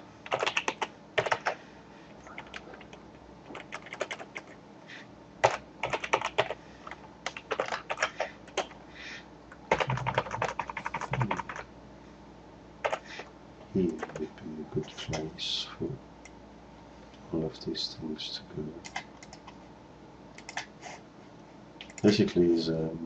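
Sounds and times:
keyboard typing: 0.2s - 1.6s, 2.2s - 4.6s, 5.4s - 8.8s, 9.5s - 11.7s, 12.8s - 13.3s, 13.9s - 15.2s, 18.8s - 19.6s, 20.4s - 20.7s, 21.8s - 22.2s.

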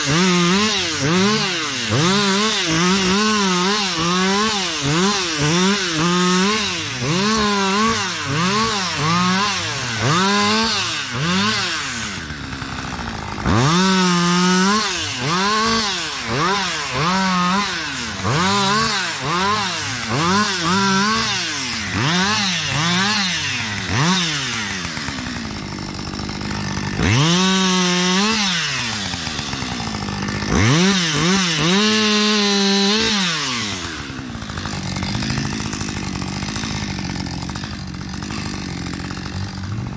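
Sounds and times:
chainsaw revving and idling: 0.0s - 39.9s.

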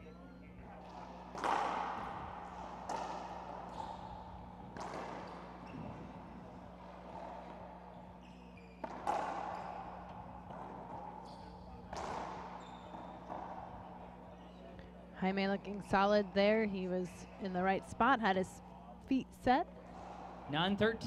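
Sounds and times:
racquetball hits ringing: 0.8s - 7.8s, 8.7s - 13.7s.

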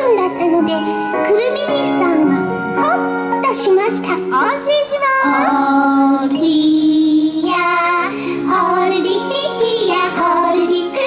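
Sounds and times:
childlike singing: 5.2s - 11.0s.

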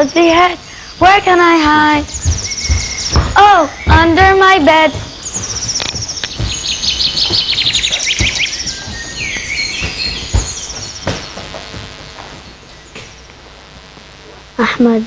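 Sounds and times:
high trilling bird chirps: 0.0s - 11.4s
dull thumps: 1.5s - 14.2s.

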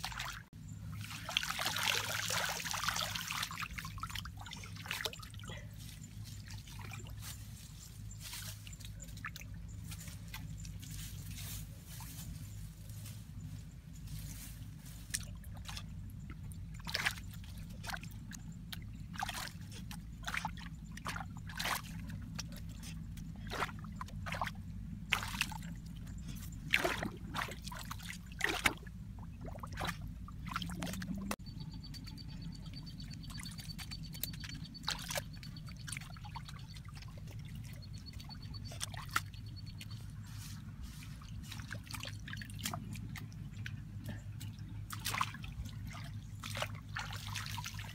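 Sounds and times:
hands splashing in mud: 26.7s - 27.8s.

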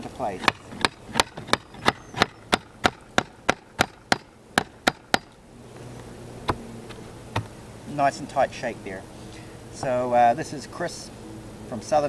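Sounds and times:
hatchet tapping wood: 0.0s - 5.4s, 6.5s - 7.6s.

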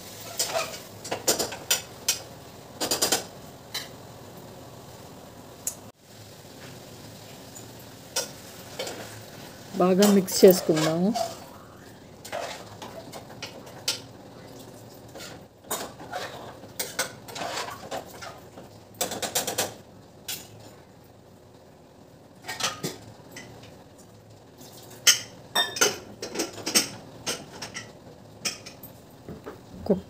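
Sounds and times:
metal spoon scraping a pot: 0.2s - 1.8s, 10.0s - 11.6s, 12.2s - 13.0s, 15.1s - 18.4s.

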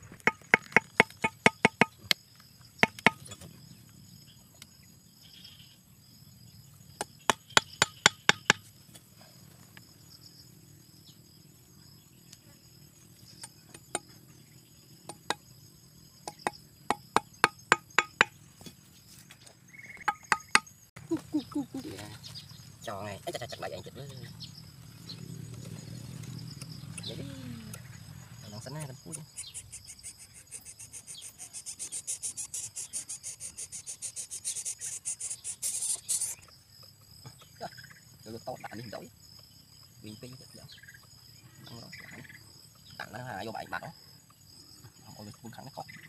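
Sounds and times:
insects buzzing: 0.0s - 46.0s
machete chopping bamboo: 2.8s - 3.3s, 7.0s - 8.7s.

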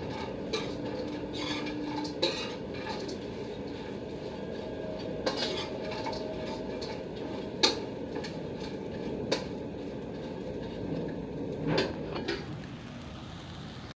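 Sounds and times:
metal spoon scraping a wok: 0.0s - 12.4s
steady hiss: 12.0s - 13.9s.

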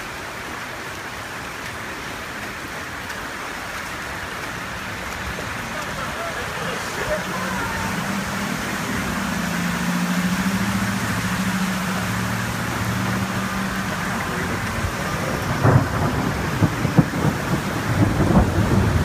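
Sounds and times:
heavy rain pouring: 0.0s - 19.0s
tyres hissing through water: 0.0s - 19.0s
low engine hum: 4.2s - 19.0s.

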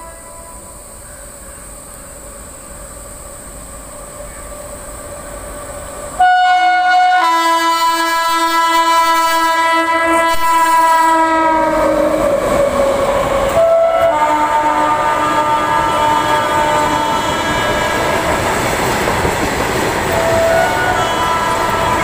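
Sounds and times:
locomotive horn blast: 0.0s - 0.8s, 6.2s - 18.3s, 20.1s - 22.0s
train rumbling: 0.0s - 22.0s.

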